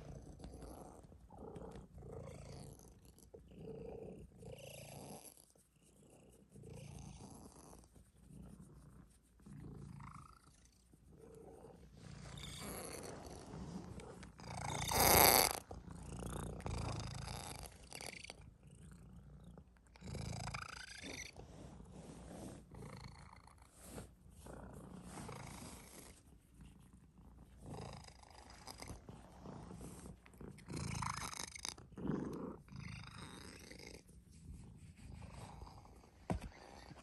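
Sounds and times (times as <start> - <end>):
cat purring: 0.0 - 37.0.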